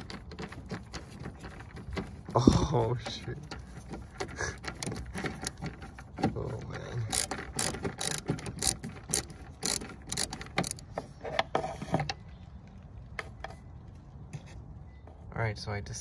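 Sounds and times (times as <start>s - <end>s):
screwdriver clicks and scrapes: 7.0s - 12.2s.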